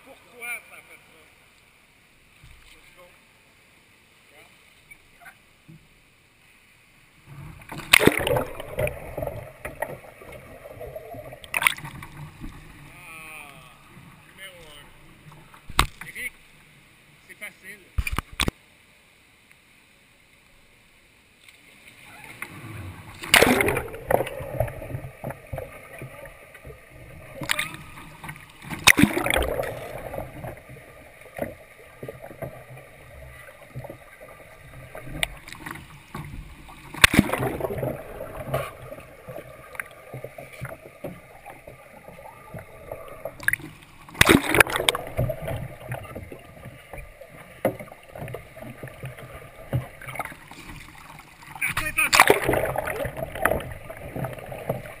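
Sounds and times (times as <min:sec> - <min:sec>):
water sloshing and gurgling: 0:00.0 - 0:17.2, 0:21.4 - 0:55.0
loud splashes: 0:07.7 - 0:12.2, 0:22.2 - 0:35.7, 0:36.8 - 0:39.9, 0:43.4 - 0:46.2, 0:47.8 - 0:54.6.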